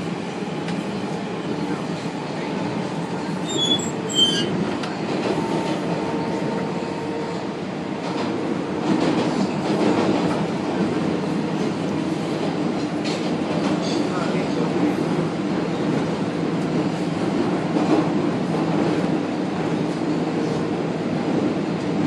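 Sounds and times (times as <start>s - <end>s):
subway train rumbling: 0.0s - 22.0s
high wheel squeals: 3.4s - 4.6s.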